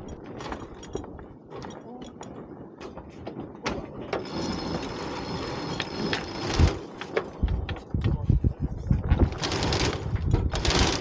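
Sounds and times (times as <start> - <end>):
rushing whir of line: 4.2 - 6.9.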